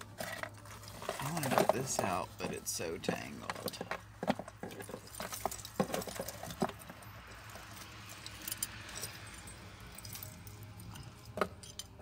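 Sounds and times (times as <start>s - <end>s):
metal jewelry chains jangling: 4.6s - 12.0s.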